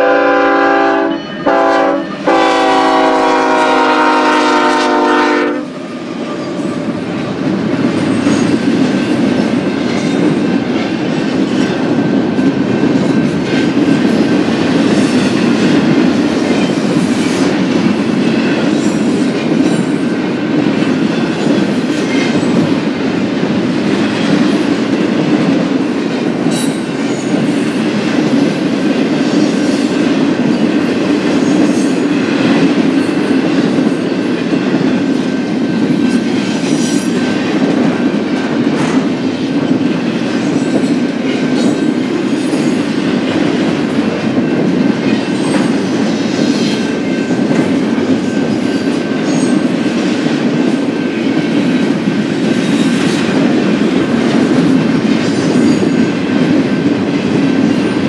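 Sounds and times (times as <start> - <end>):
freight train rolling past: 0.0 - 58.0.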